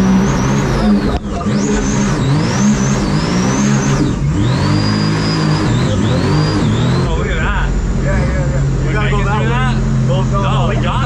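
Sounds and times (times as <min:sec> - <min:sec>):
jet boat engine revving: 0:00.0 - 0:11.0
supercharger whine: 0:00.0 - 0:11.0.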